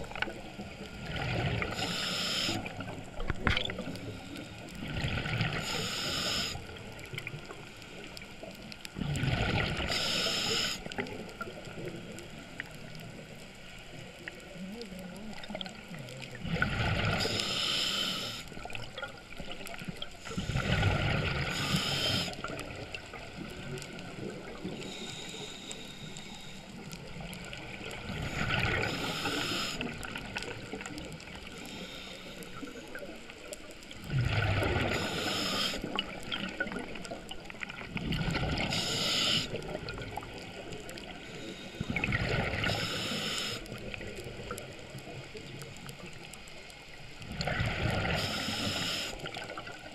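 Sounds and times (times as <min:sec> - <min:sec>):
low water hiss: 0:00.0 - 0:49.9
regulator breathing hiss: 0:01.7 - 0:02.9, 0:05.6 - 0:06.8, 0:09.9 - 0:11.1, 0:17.2 - 0:18.6, 0:21.4 - 0:22.6, 0:24.8 - 0:26.8, 0:28.3 - 0:30.2, 0:31.5 - 0:33.0, 0:34.9 - 0:35.9, 0:38.6 - 0:39.6, 0:41.2 - 0:42.0, 0:42.6 - 0:43.9, 0:48.1 - 0:49.4
exhaled bubbles rushing: 0:09.0 - 0:09.9, 0:34.0 - 0:35.1, 0:35.8 - 0:38.7, 0:47.2 - 0:48.2.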